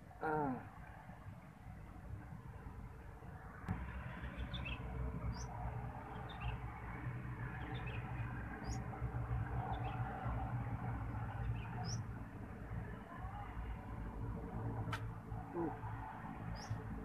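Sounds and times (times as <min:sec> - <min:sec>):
small birds chirping: 0:04.1 - 0:10.2, 0:11.2 - 0:12.2, 0:16.5 - 0:17.0.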